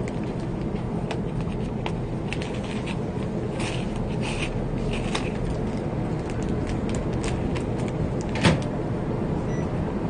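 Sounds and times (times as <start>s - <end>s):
steady low rumble: 0.0s - 10.0s
plastic wrapper clicking and crinkling: 4.8s - 8.3s.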